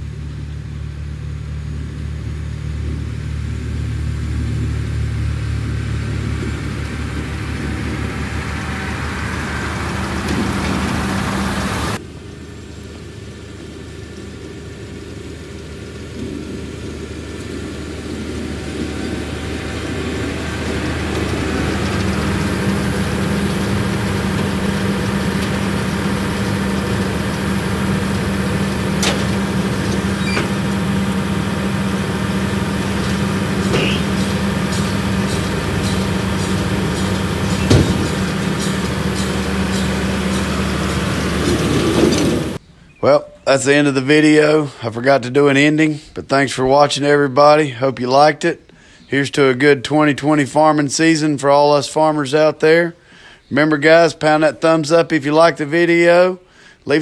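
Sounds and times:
round baler working: 0.0s - 44.8s
tractor diesel engine running: 0.0s - 57.0s.

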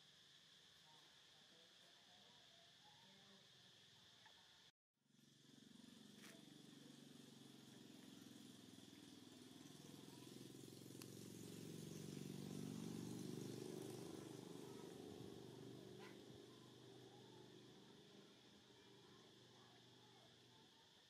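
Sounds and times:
faint low engine drone: 5.1s - 20.8s
faint steady high tone: 7.5s - 21.0s.

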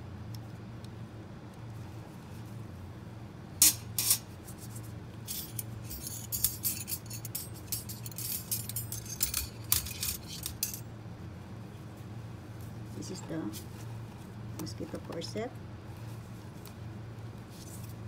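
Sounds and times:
low steady hum: 0.0s - 18.0s
metal instruments clinking: 5.2s - 10.9s.

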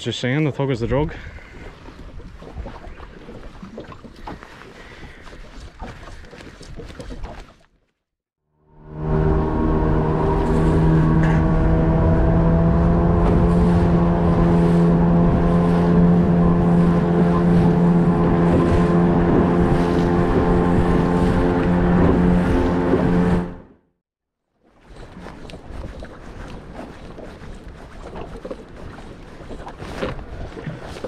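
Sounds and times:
wind: 0.0s - 8.0s, 8.6s - 23.8s, 24.4s - 31.0s
outboard motor running: 8.6s - 23.8s
rush of boat wake: 8.7s - 23.7s, 24.7s - 31.0s.

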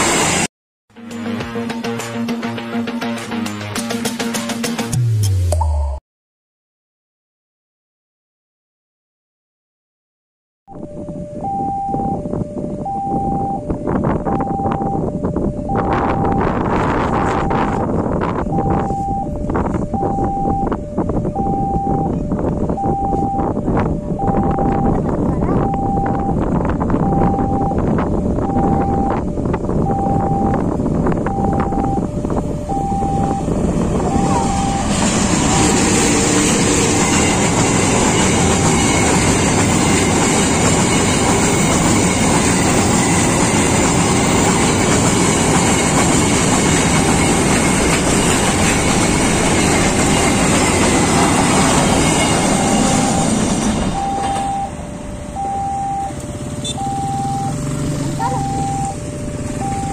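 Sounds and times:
diesel locomotive engine: 0.0s - 5.1s, 10.7s - 59.9s
two-note electronic warning tone: 10.7s - 44.9s, 51.7s - 59.9s
high wheel whine: 25.6s - 59.9s
freight wagons rumbling and clattering: 32.1s - 55.0s.

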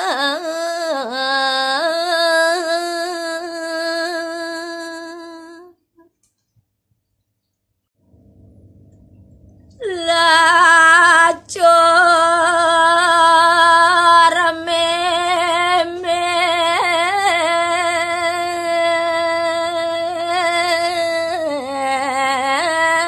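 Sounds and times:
woman singing solo: 9.8s - 23.0s.

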